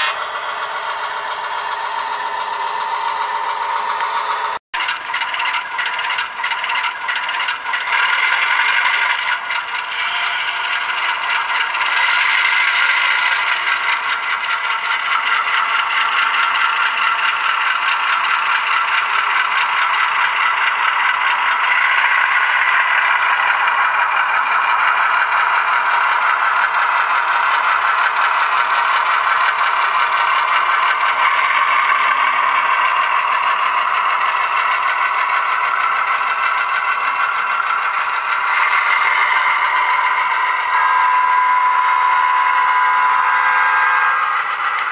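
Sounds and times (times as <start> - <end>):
model locomotive diesel engine sound: 0.0 - 44.9.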